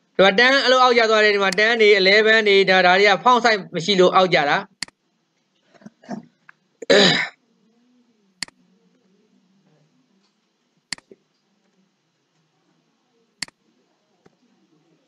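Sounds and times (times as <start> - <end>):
computer mouse clicks: 10.2 - 11.2.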